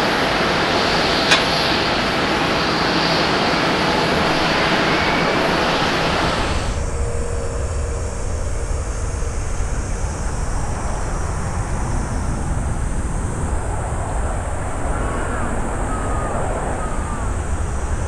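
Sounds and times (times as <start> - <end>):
distant airplane rumble: 0.0 - 18.0
loud jet engine noise: 0.0 - 18.0.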